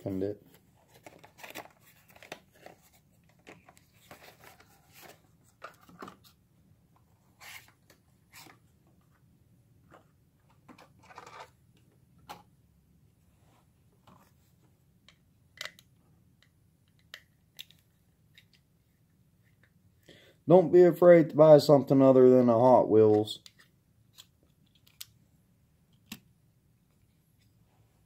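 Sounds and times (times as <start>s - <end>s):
packaging rustling and clicking: 0.9s - 6.3s.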